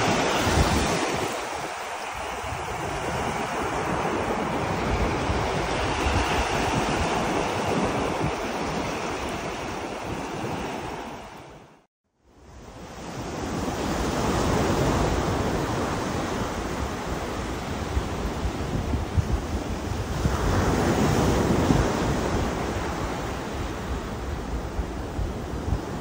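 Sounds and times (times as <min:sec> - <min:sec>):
ocean surf breaking: 0:00.0 - 0:11.8
wind on microphone: 0:00.0 - 0:11.8, 0:12.4 - 0:26.0.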